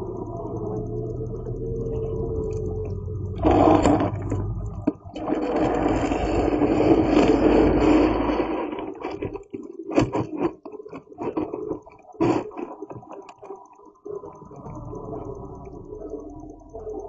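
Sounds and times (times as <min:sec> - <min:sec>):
short clicks and scratches: 0:02.4 - 0:14.9.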